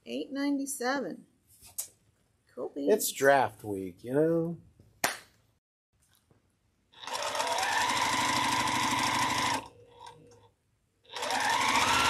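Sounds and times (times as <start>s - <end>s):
sewing machine stitching: 7.0s - 10.5s, 11.1s - 12.0s.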